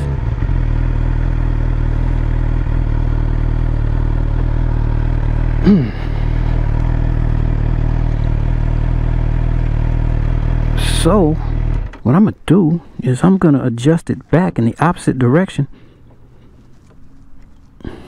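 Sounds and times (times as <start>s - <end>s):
motorcycle engine idling: 0.0s - 13.4s.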